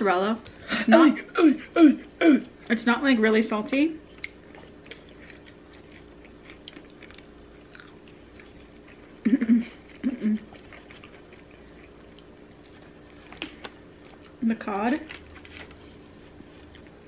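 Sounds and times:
chewing mouth sounds: 4.0 - 9.2, 9.8 - 14.4.

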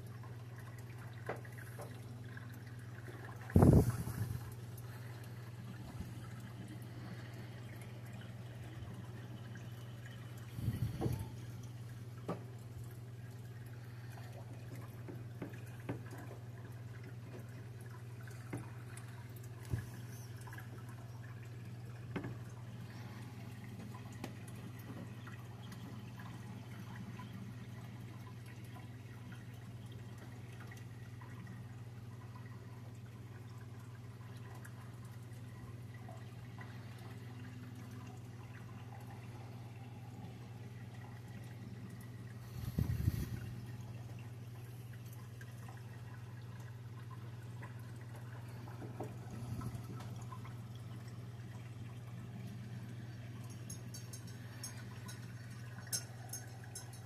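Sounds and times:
aquarium filter humming: 0.0 - 57.0
water trickling: 0.0 - 57.0.

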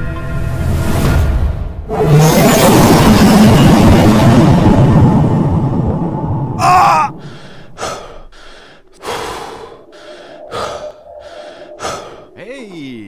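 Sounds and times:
person gasping: 6.8 - 12.9.

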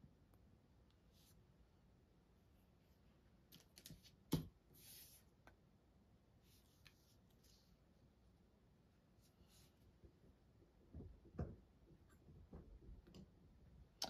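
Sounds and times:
soft rustling: 6.4 - 7.9.

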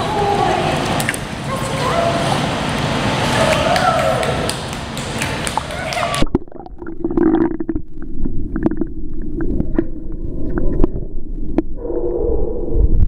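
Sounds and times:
muffled churning water underwater: 5.5 - 13.0.

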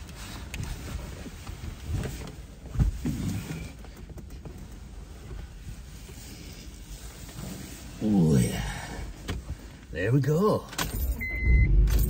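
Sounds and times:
person shifting inside car: 0.0 - 8.0.

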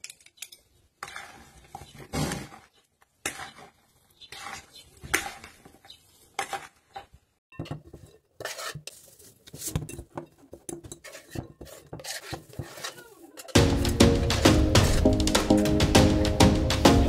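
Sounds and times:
cutlery scraping against bowls: 7.6 - 13.6
loud music: 13.6 - 17.0.

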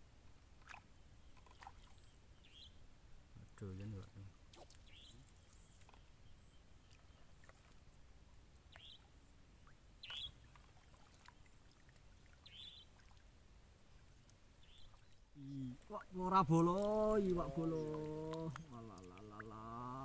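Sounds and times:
small bird chirping: 0.6 - 2.8, 4.5 - 7.7, 8.7 - 11.5, 12.2 - 13.2, 14.6 - 16.0.

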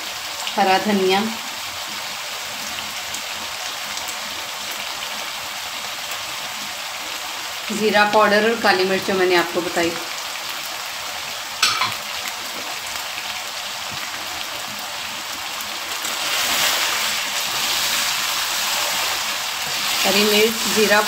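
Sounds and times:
mince sizzling in oil: 0.0 - 21.0
wooden spoon stirring: 16.1 - 21.0.

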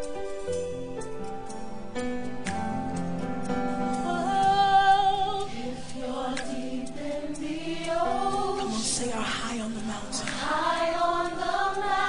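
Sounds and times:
worship song: 3.5 - 12.0.

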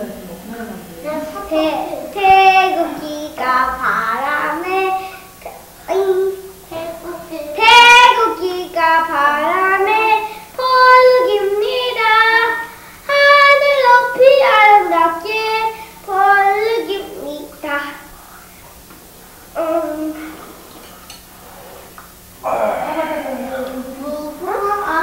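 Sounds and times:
faint steady hum: 0.0 - 25.0
child singing: 1.0 - 18.1, 19.6 - 20.3, 22.4 - 25.0.

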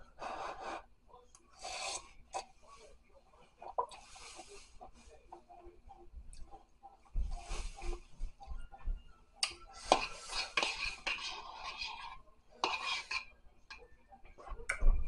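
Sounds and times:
slurp of noodles: 1.6 - 2.0
fork scraping ceramic bowl: 9.8 - 13.3.

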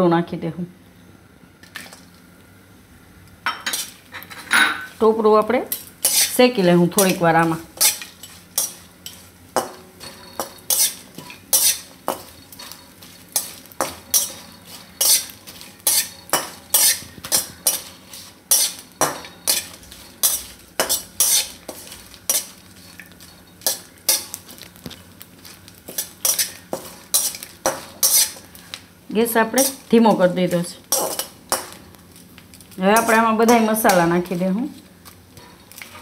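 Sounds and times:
faint sizzle of frying: 0.0 - 36.0
metal spatula scraping a pan: 5.7 - 6.4, 7.0 - 24.4, 25.9 - 28.5, 30.9 - 31.8, 33.0 - 34.4.

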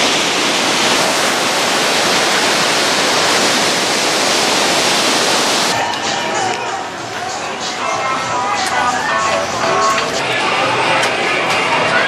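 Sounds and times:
ocean surf on a beach: 0.0 - 5.8.

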